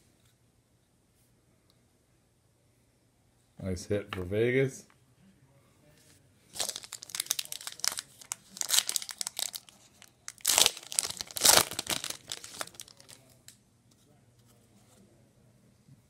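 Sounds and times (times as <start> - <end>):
foil wrapper crinkling and tearing: 6.6 - 13.3.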